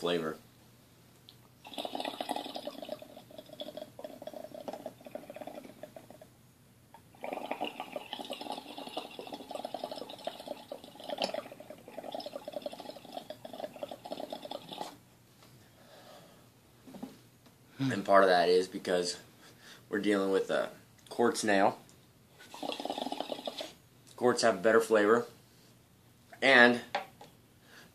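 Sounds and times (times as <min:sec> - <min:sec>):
water bubbling in glass pipe: 0:01.6 - 0:06.3, 0:07.0 - 0:15.0, 0:22.5 - 0:23.8.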